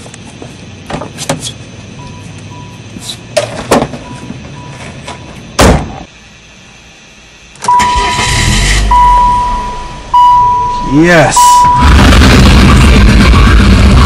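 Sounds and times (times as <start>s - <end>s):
car door slamming shut: 5.6s - 6.0s
faint beep: 7.7s - 8.2s, 8.8s - 12.0s.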